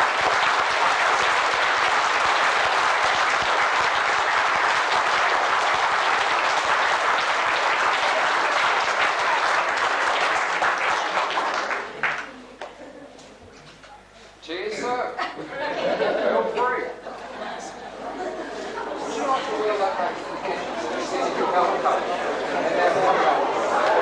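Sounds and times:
audience applauding: 0.0 - 12.8.

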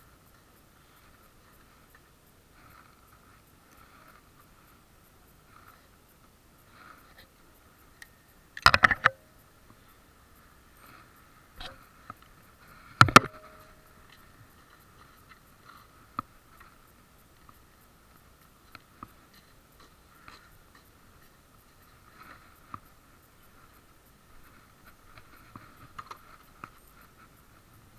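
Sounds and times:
faint steady high whine: 0.0 - 27.9
faint ticks: 0.0 - 27.9
handling noise on camera: 8.6 - 9.3, 13.0 - 17.6.

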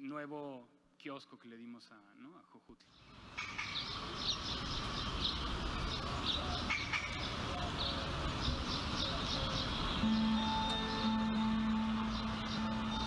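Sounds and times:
steady background noise: 2.8 - 13.0
birds chirping: 2.9 - 13.0.

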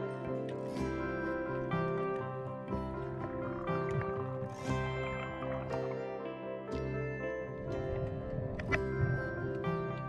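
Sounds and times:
instrumental music with sustained notes: 0.0 - 10.0.

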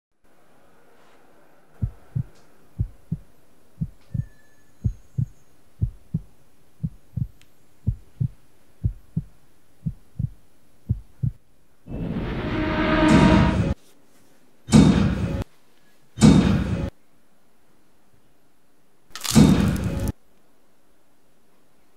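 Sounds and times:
heartbeat thumps: 1.8 - 11.4
loud rushing noise: 11.9 - 13.8.

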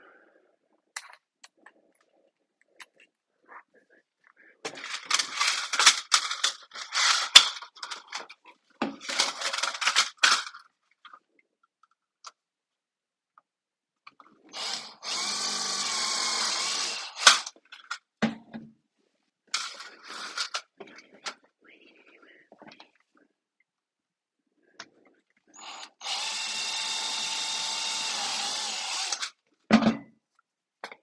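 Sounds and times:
cordless drill boring through metal: 7.0 - 7.4, 14.5 - 17.5, 25.6 - 29.4.

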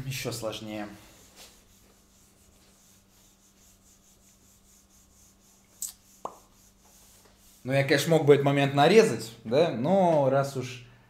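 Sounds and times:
eraser rubbing on whiteboard: 0.9 - 8.1.

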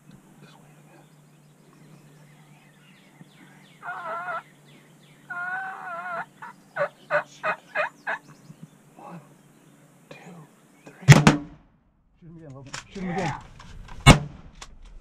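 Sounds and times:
short sharp turkey calls: 3.8 - 4.4, 5.3 - 8.3
wild turkey gobbling: 3.8 - 4.5, 5.3 - 8.3.

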